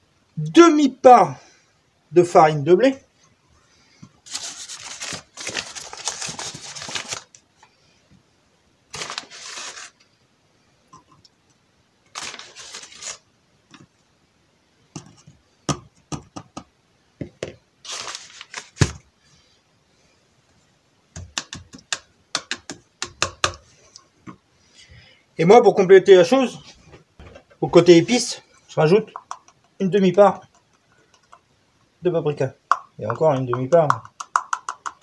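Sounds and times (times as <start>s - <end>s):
flour bag rustling and crinkling: 4.2s - 7.4s, 8.9s - 10.0s, 12.1s - 13.3s, 17.8s - 19.0s
plastic pot clicking and knocking: 15.7s - 17.6s, 21.2s - 23.6s, 29.1s - 29.8s, 32.7s - 35.0s.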